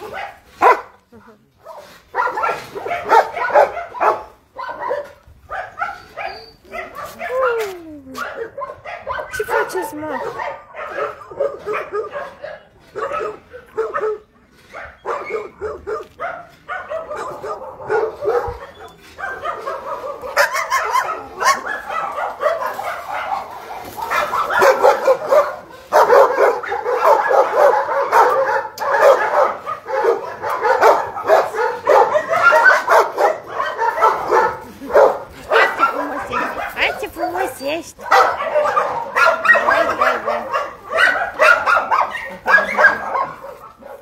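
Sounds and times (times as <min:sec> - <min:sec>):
dogs barking and yipping: 0:00.0 - 0:01.0, 0:01.6 - 0:44.0.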